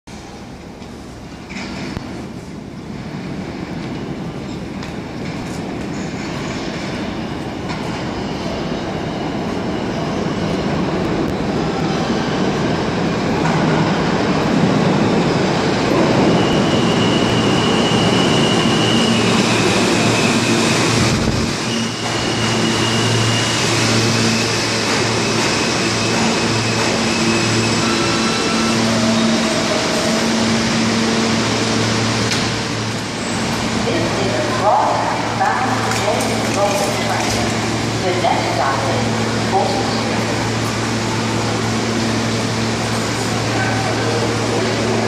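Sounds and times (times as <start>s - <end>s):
subway train rumble: 0.0s - 45.0s
high brake squeal: 16.2s - 30.6s.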